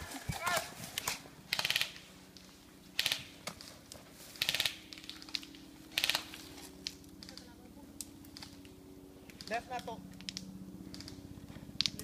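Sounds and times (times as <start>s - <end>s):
airsoft guns full-auto bursts: 1.5s - 2.0s, 2.9s - 3.3s, 4.4s - 5.2s, 5.9s - 6.4s.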